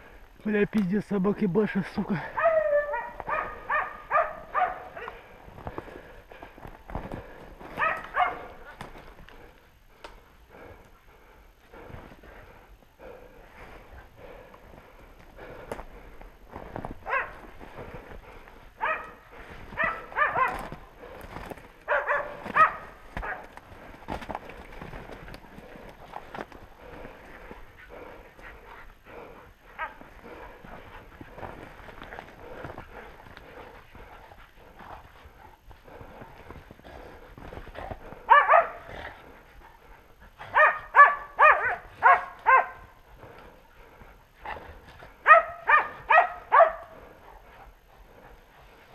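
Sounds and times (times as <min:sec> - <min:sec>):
dogs barking: 0:02.2 - 0:05.5, 0:07.6 - 0:08.9, 0:17.0 - 0:23.9, 0:26.8 - 0:31.6, 0:38.0 - 0:39.3, 0:40.4 - 0:43.4, 0:45.2 - 0:47.8
footsteps crunching in snow: 0:13.6 - 0:39.1.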